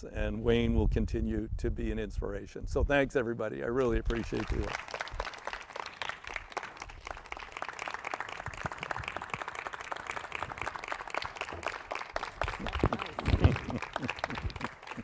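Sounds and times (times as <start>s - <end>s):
audience applauding: 4.1s - 15.0s.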